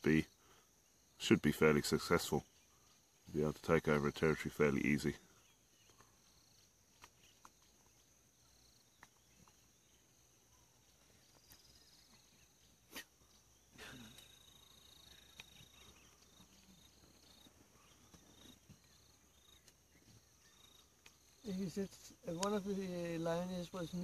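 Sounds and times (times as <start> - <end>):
high insect drone: 0.0 - 24.0
faint clicks: 8.9 - 9.6, 15.0 - 16.7, 20.8 - 21.3.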